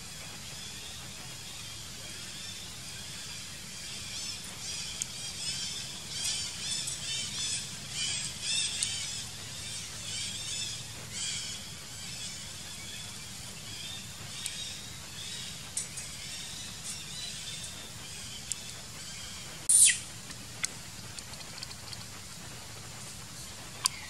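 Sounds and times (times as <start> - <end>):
steady low rumble: 0.0 - 24.0
high-pitched animal chirping: 19.7 - 20.1.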